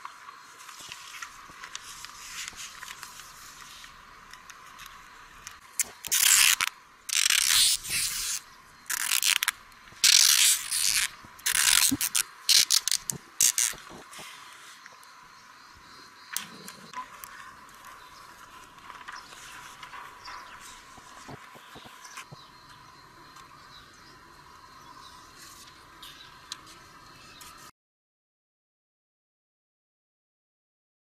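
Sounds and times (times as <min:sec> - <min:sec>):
adhesive tape ripping off roll: 0:05.8 - 0:14.0.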